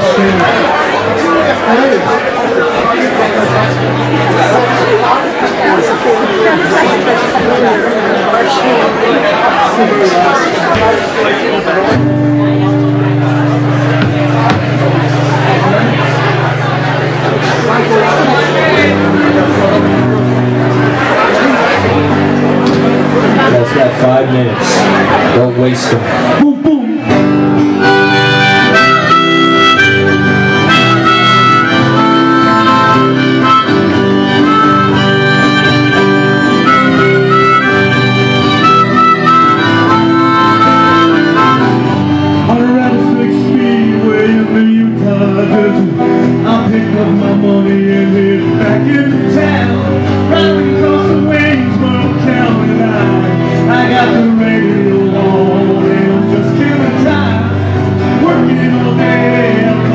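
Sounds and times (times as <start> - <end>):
live rock band: 11.8 - 59.9
harmonica solo: 27.1 - 46.4.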